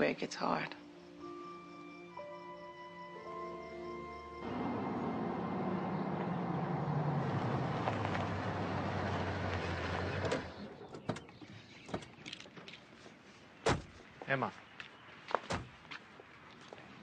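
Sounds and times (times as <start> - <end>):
tyre and road noise: 4.3 - 17.0
car engine running: 4.4 - 10.6.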